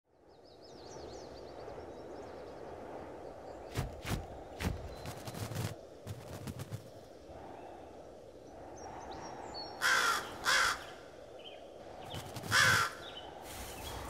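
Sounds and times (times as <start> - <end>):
low forest background noise: 0.1 - 14.0
small bird twittering: 11.4 - 14.0.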